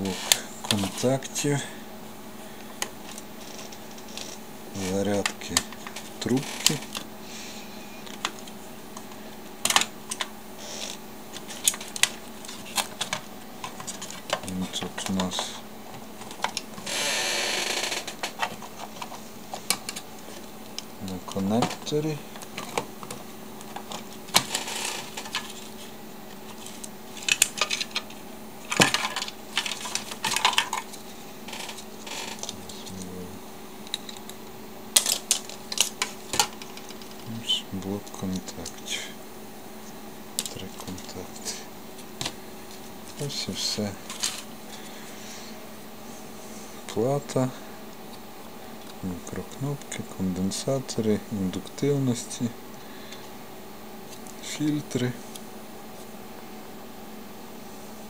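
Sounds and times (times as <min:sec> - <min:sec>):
plastic and circuit board being handled: 0:09.6 - 0:16.8, 0:28.7 - 0:31.0.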